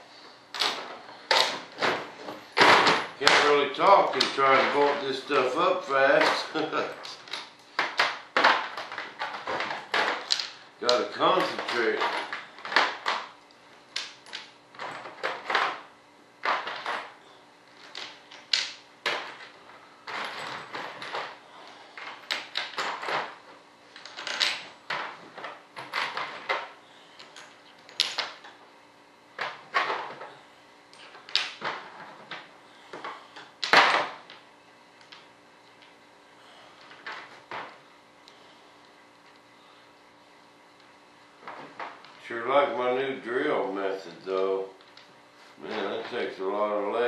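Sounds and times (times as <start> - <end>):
metal bolts clinking and clattering: 24.0 - 26.6.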